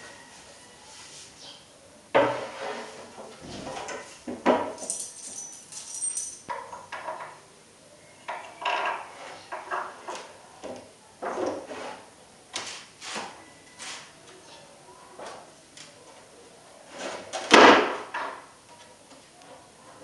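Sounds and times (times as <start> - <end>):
metal screws clinking: 4.8 - 6.6.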